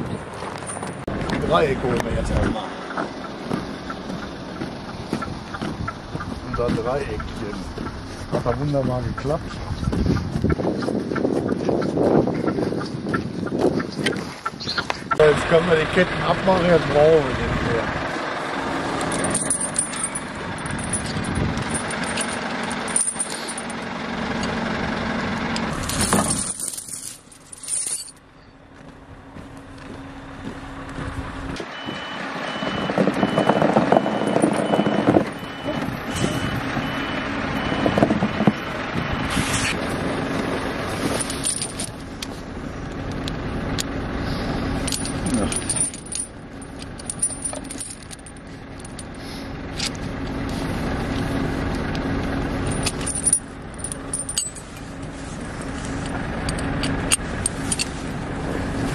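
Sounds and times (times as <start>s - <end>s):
diesel truck engine running: 0.0s - 58.9s
reversing alarm beeping: 31.6s - 39.7s.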